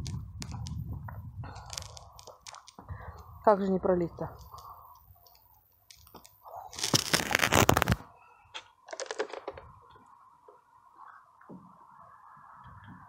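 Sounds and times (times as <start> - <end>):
microphone handling crackles: 0.0 - 3.0, 6.8 - 8.0.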